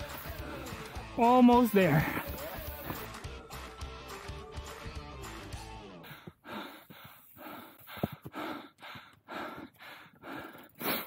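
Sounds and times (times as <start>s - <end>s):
music: 0.0s - 6.3s
heavy quick breathing: 5.9s - 11.0s.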